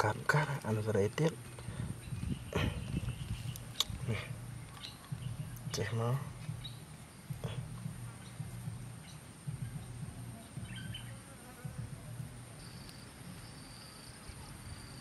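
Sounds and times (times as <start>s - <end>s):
insect buzzing close by: 6.4s - 15.0s
high-pitched insect drone: 6.7s - 15.0s.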